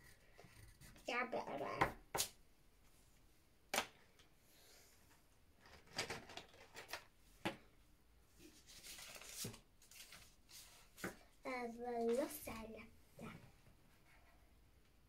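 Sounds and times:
pen scrawling on paper: 0:00.0 - 0:01.1
pens rummaged in plastic tub: 0:05.6 - 0:07.2.

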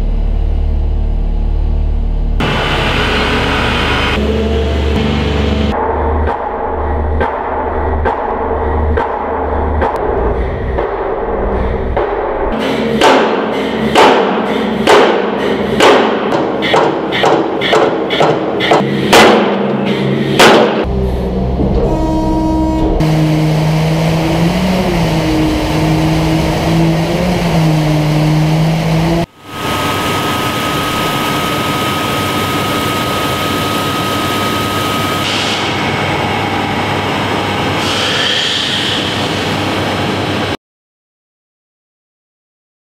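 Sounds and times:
pile hammer striking steel: 0:06.2 - 0:10.0, 0:12.0 - 0:20.9.

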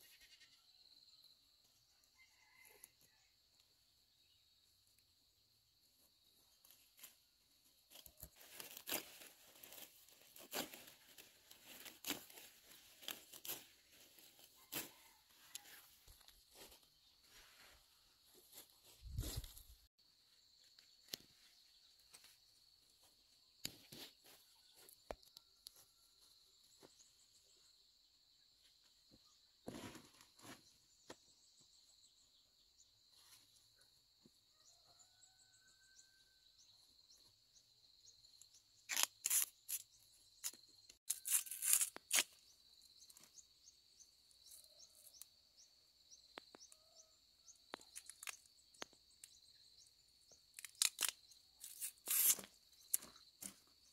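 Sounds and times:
faint bird chirps: 0:00.0 - 0:03.3, 0:34.5 - 0:38.9, 0:42.5 - 0:50.6
vegetable stems rustling and snapping: 0:07.9 - 0:13.6, 0:38.9 - 0:39.8, 0:40.4 - 0:42.3, 0:47.8 - 0:48.5, 0:50.5 - 0:53.6.

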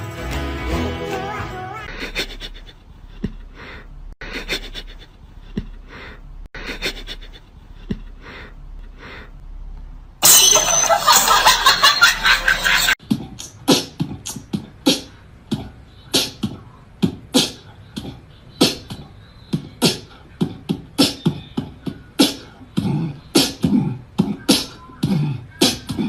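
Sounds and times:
sharp percussive hits: 0:10.2 - 0:11.9.

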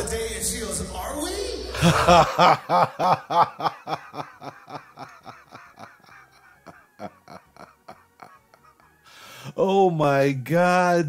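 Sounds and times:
man laughing hard: 0:01.8 - 0:09.4.

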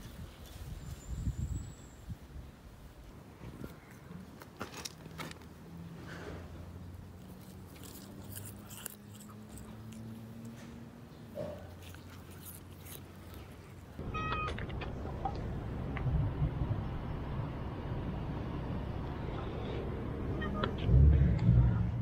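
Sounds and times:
street traffic noise: 0:00.0 - 0:22.0
cat chewing grass: 0:06.9 - 0:14.0
low steady hum: 0:13.5 - 0:22.0.

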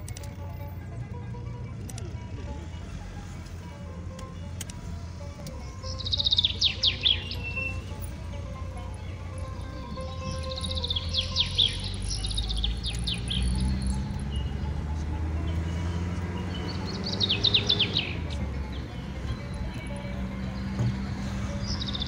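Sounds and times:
bird chirping: 0:05.4 - 0:22.0.

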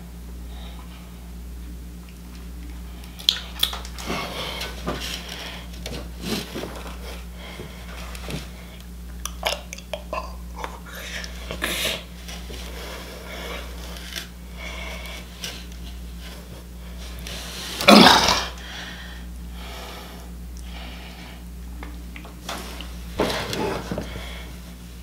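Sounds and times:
low electrical hum: 0:00.0 - 0:25.0
person burping loudly: 0:17.8 - 0:18.6.

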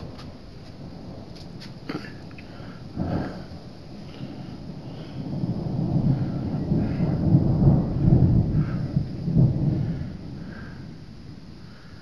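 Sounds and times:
thunder rumbling: 0:00.0 - 0:12.0.

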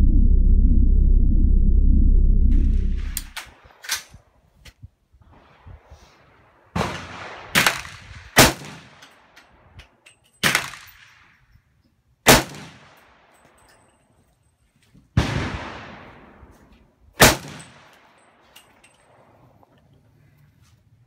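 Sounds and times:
faint gunshots: 0:05.3 - 0:09.0
loud rifle shots echoing: 0:06.7 - 0:09.3, 0:12.3 - 0:13.3, 0:15.2 - 0:16.5, 0:17.2 - 0:18.2.

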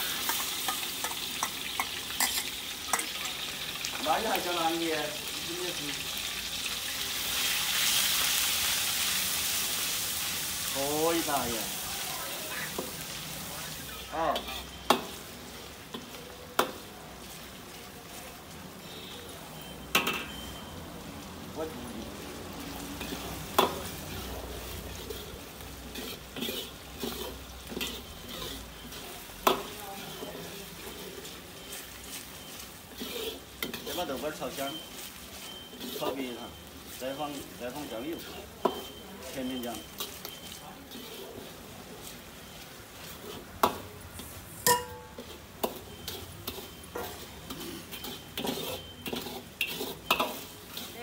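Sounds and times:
paste sizzling in oil: 0:00.0 - 0:51.0
ladle scraping wok: 0:07.1 - 0:20.7, 0:22.2 - 0:51.0
ladle clanking against wok: 0:37.6 - 0:41.5, 0:43.2 - 0:51.0.

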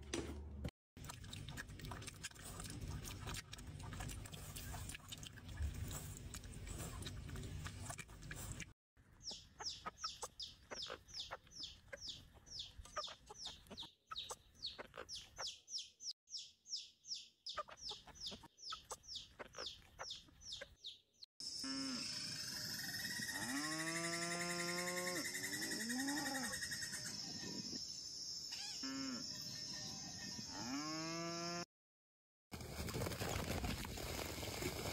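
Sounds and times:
baby chicks peeping: 0:09.2 - 0:21.1.

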